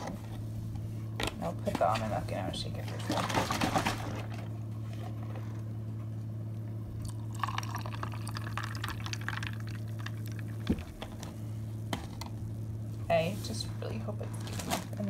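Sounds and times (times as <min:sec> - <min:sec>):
steady low hum: 0:00.0 - 0:15.0
milk pouring onto ice: 0:07.0 - 0:10.8.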